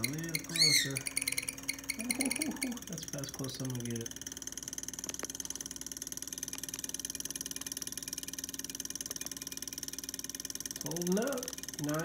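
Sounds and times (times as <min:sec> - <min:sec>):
sharp ticks: 0:00.0 - 0:11.9
steady motor hum: 0:00.0 - 0:12.0.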